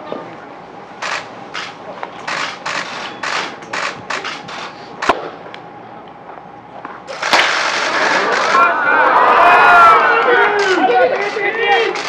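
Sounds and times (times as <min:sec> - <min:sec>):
short noisy bursts: 0:01.0 - 0:05.1, 0:07.1 - 0:08.8, 0:10.5 - 0:12.0
sharp crack: 0:01.0 - 0:05.7, 0:07.1 - 0:08.7.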